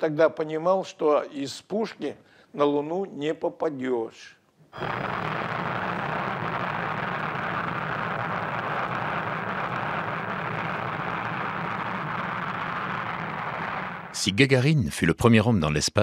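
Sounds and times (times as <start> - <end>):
rocket engines rushing: 4.8 - 14.2.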